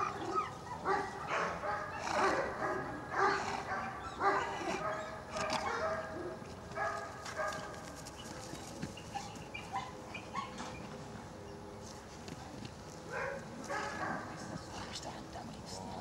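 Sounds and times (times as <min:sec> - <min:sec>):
dog barking and yelping: 0:00.0 - 0:07.5, 0:09.1 - 0:10.7.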